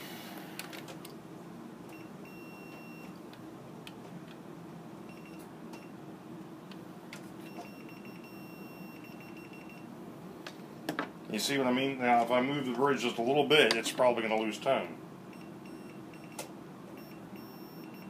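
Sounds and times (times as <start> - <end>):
continuity tester beeping: 1.9 - 3.2, 5.1 - 6.0, 7.4 - 9.9, 15.3 - 18.0.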